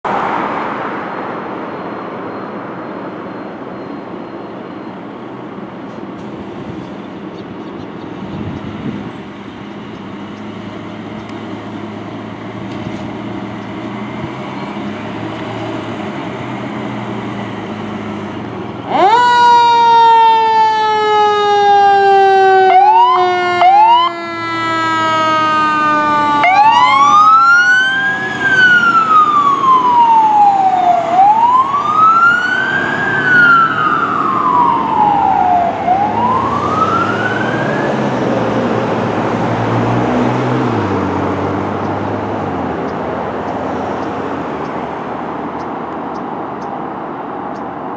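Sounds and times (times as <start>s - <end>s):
diesel engine running: 3.7s - 19.2s
fire truck siren wailing: 10.1s - 46.5s.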